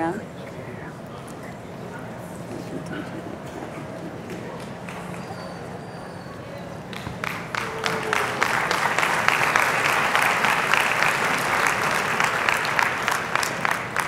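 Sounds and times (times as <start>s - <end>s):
audience applauding: 2.5s - 5.9s, 6.9s - 14.0s.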